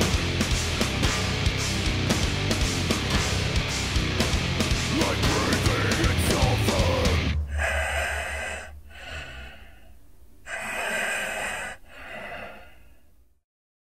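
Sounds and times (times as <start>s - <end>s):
heavy metal music: 0.0s - 9.8s
heavy hoarse breathing: 5.5s - 13.4s.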